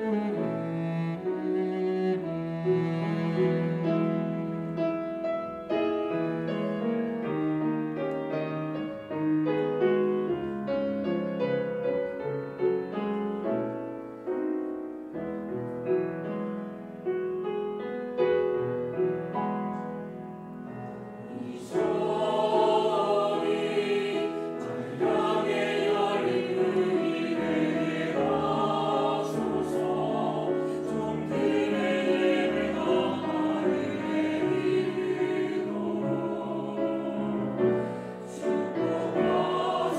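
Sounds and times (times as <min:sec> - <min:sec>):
cello: 0:00.0 - 0:39.9
piano: 0:00.0 - 0:39.9
choir singing a hymn: 0:20.8 - 0:39.9.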